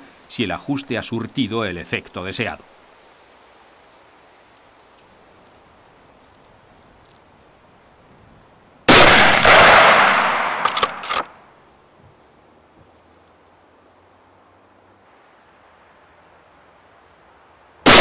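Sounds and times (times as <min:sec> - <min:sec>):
rifle shot: 0:08.9 - 0:11.3
sharp clicks: 0:10.4 - 0:11.4.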